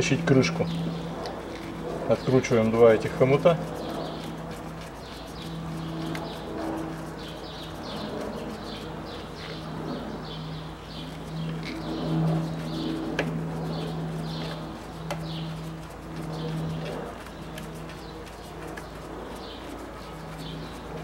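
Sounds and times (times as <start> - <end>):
small birds chirping: 0.0 - 21.0
steady low hum: 0.0 - 21.0.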